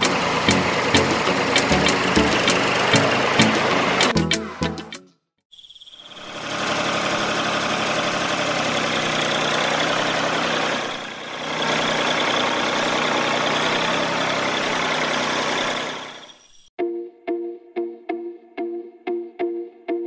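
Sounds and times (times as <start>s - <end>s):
motor running with high whine: 6.1s - 16.4s.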